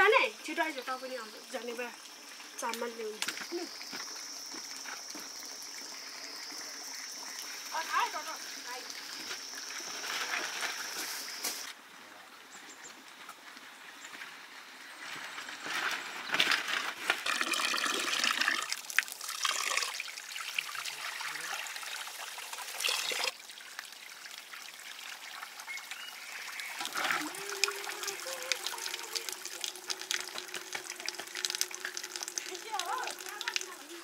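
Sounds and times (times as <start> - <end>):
water pouring and splashing: 0.0 - 11.8, 15.7 - 34.0.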